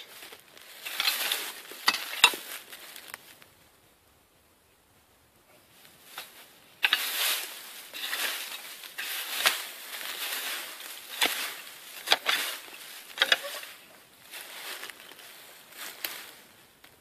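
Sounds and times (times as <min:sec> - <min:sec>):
rake scraping through dry leaves: 0:00.0 - 0:03.4, 0:05.9 - 0:16.7
rake knocking on ground: 0:00.8 - 0:02.6, 0:06.2 - 0:13.7.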